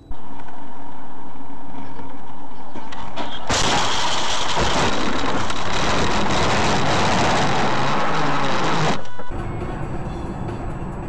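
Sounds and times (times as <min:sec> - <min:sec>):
loud steady rushing noise: 0:04.6 - 0:09.0.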